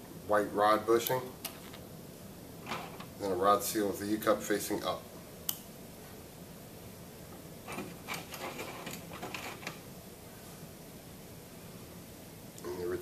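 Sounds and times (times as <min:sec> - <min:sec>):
small parts scraping and rustling: 0:02.6 - 0:03.1, 0:07.7 - 0:09.8.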